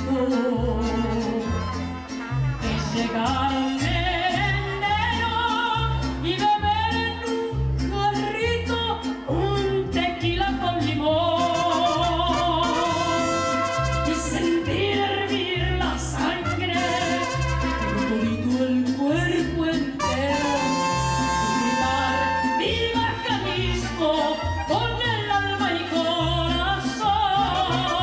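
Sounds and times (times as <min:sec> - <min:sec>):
woman singing with vibrato: 0:00.0 - 0:01.8, 0:02.6 - 0:28.0
strummed guitars: 0:00.0 - 0:28.0.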